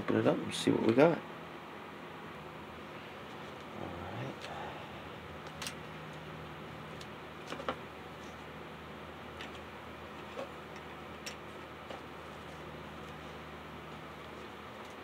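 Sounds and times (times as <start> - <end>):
faint steady hum: 0.0 - 15.0.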